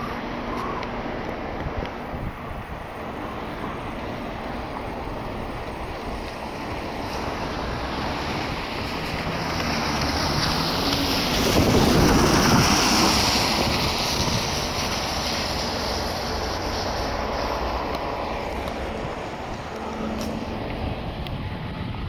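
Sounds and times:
tyres hissing on wet road: 0.0 - 22.0
wind buffeting microphone: 0.0 - 22.0.

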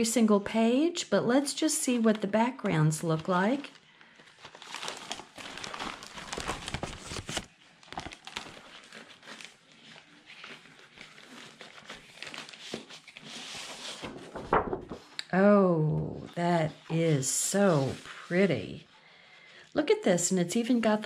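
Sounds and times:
plastic bag crinkling: 2.8 - 13.2
paper sheets sliding: 11.9 - 15.1.

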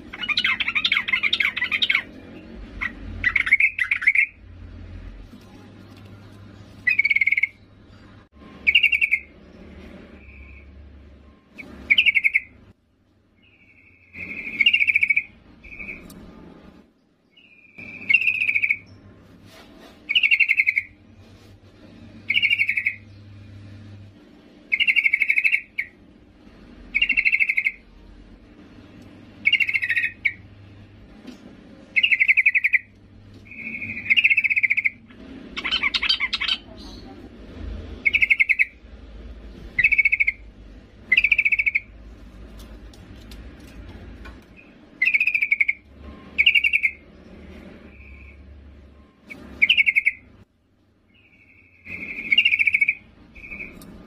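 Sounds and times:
bird buzzy trilled calls: 0.0 - 4.4, 6.8 - 7.7, 8.6 - 9.4, 11.6 - 12.7, 13.4 - 16.1, 17.3 - 19.0, 20.1 - 21.0, 22.2 - 23.2, 24.6 - 26.0, 26.9 - 27.9, 29.4 - 30.5, 31.9 - 37.2, 38.0 - 38.9, 39.7 - 42.0, 44.6 - 47.2, 47.8 - 50.4, 51.1 - 54.0.

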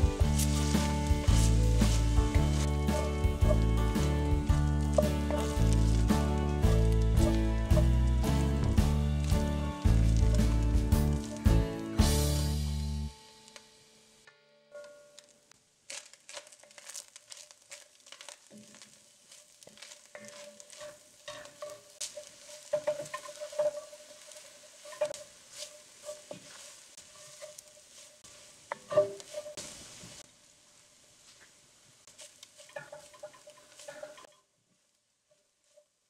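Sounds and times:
utensil scraping pot: 0.0 - 11.5, 16.4 - 29.6, 32.5 - 34.4
food sizzling in pot: 0.0 - 13.1, 16.0 - 34.4.

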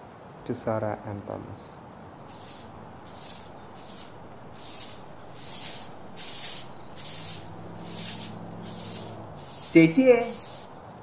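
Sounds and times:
broom sweeping: 2.3 - 10.7.

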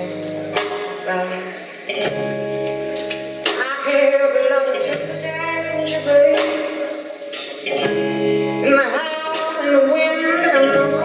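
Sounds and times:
woman singing: 0.0 - 1.8, 3.5 - 7.2, 8.2 - 11.0
live rock band playing: 0.0 - 11.0.

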